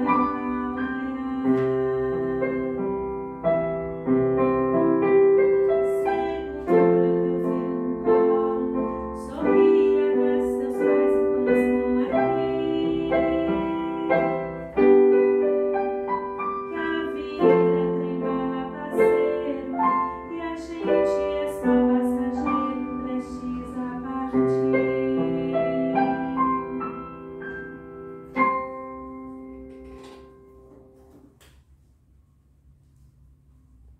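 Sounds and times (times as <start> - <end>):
slow piano chords: 0.0 - 33.9.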